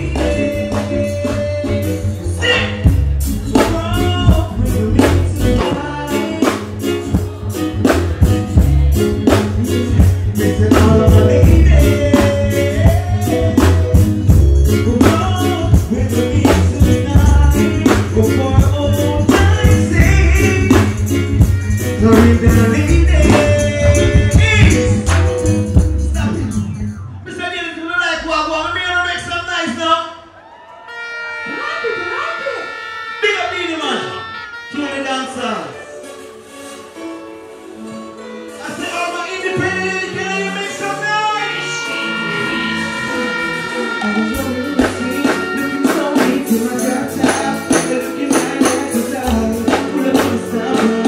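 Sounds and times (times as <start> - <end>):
man singing into microphone: 0.0 - 2.9, 3.5 - 7.9, 9.2 - 25.2, 38.6 - 51.0
backing track with drums and bass: 0.0 - 27.2, 43.0 - 51.0.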